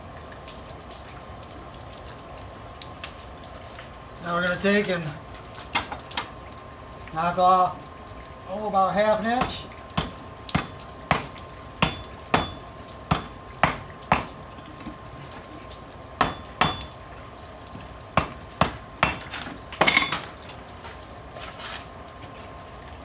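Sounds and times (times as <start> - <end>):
hammer striking metal on anvil: 9.4 - 14.3, 16.2 - 17.0, 18.2 - 20.2.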